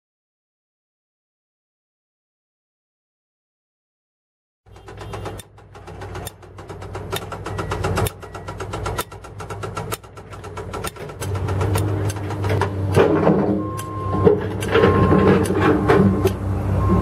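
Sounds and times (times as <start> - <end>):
rapid clicking or clattering: 4.7 - 13.0
engine running: 4.7 - 17.0.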